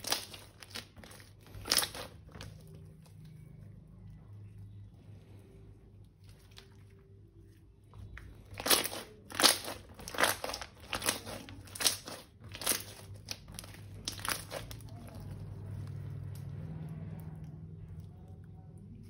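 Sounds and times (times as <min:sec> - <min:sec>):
slime squished in hands: 0:00.0 - 0:03.5, 0:06.0 - 0:17.8.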